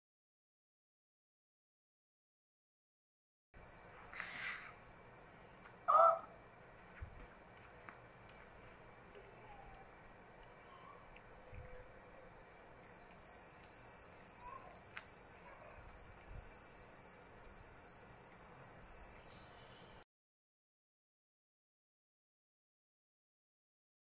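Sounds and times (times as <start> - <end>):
cricket trilling: 3.6 - 7.8, 12.1 - 20.0.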